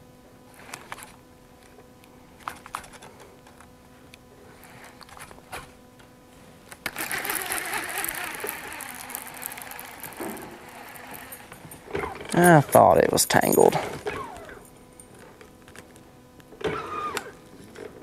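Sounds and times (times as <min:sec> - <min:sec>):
fishing reel whirring: 0:06.8 - 0:12.5.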